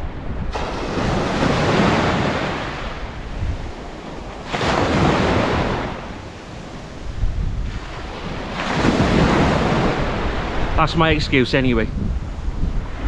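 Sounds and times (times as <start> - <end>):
wind buffeting microphone: 0.0 - 13.0
small waves breaking on beach: 0.5 - 10.8.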